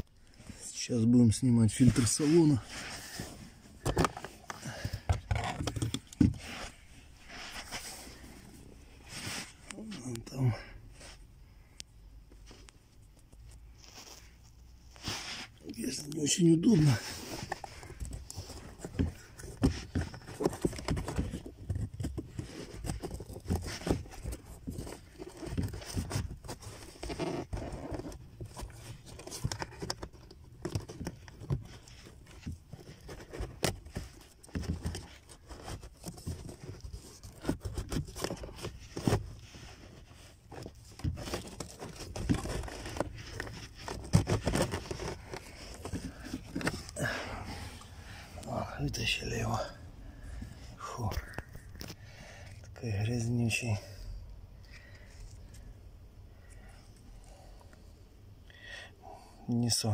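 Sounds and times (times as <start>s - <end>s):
plastic cover clicks and scraping: 1.8s - 7.9s, 16.7s - 47.0s, 50.2s - 52.7s.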